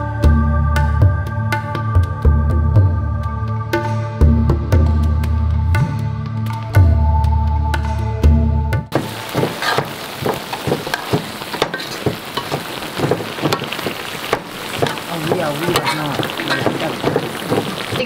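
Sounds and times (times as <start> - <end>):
knife scraping board: 9.4 - 9.9.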